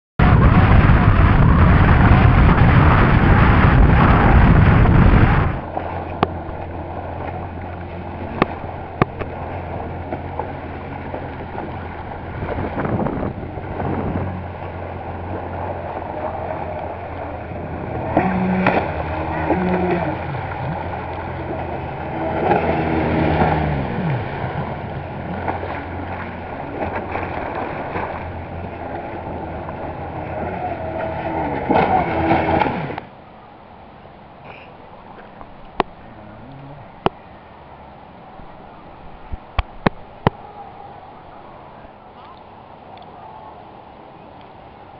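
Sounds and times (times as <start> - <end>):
wind and spray rush: 0.2 - 33.1
jet ski engine hum: 0.2 - 44.9.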